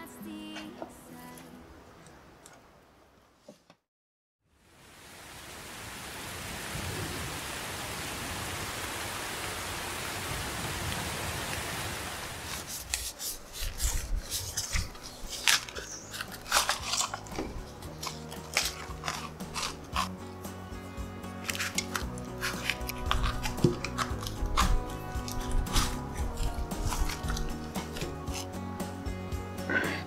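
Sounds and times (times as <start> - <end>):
soft music: 0.0 - 2.2, 13.4 - 30.0
steady rain hiss: 4.5 - 14.0
plastic mould crackling: 12.5 - 20.1.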